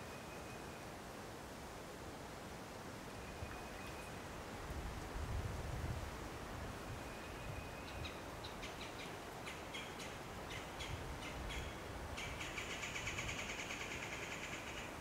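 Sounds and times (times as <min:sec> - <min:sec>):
bird calls: 0:07.2 - 0:15.0.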